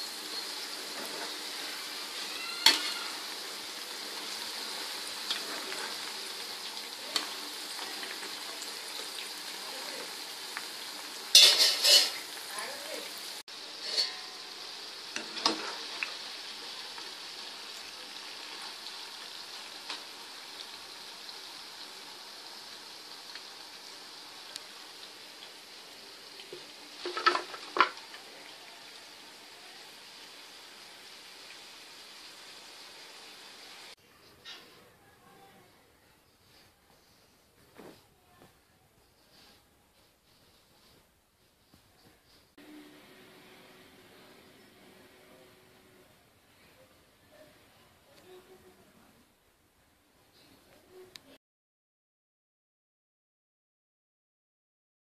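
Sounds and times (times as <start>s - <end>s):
fries sizzling in hot oil: 0.0s - 34.7s, 42.6s - 48.8s.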